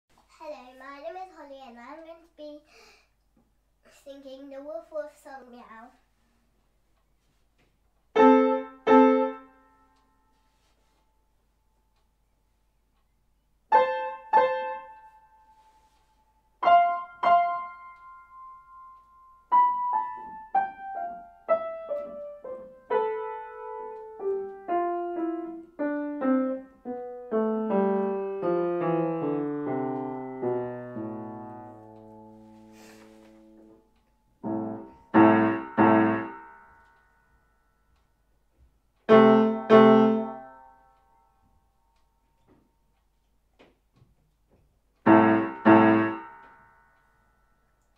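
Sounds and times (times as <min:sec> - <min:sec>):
grand piano playing: 0:08.2 - 0:09.6, 0:16.6 - 0:33.8, 0:34.4 - 0:36.8, 0:39.1 - 0:40.8, 0:45.0 - 0:46.5.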